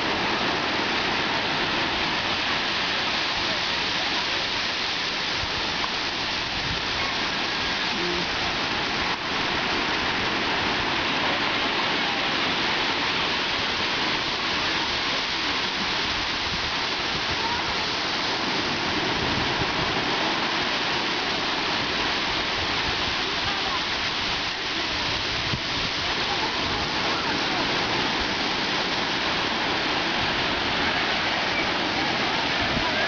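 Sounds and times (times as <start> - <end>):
ocean surf washing: 0.0 - 33.0.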